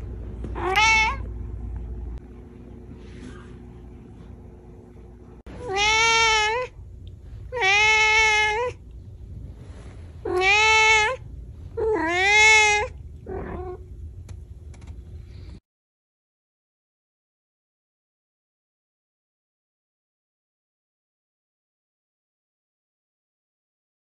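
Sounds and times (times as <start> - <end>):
cat meowing: 0.6 - 1.3, 5.6 - 6.8, 7.5 - 8.8, 10.2 - 11.2, 11.8 - 13.8.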